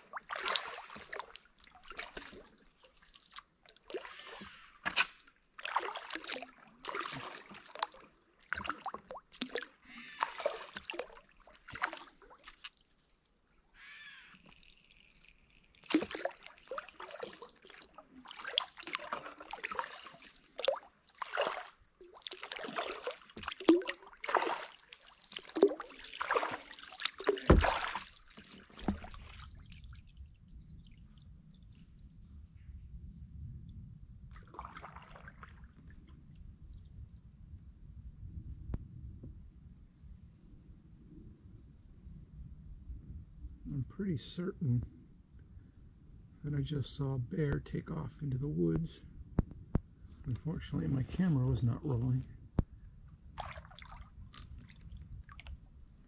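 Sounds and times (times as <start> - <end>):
paddle dipping into water: 0.0 - 13.3, 14.2 - 30.3, 34.3 - 36.2, 52.6 - 55.6
water dripping off paddle: 0.1 - 12.9, 14.2 - 30.0
low steady rumble: 29.9 - 34.4.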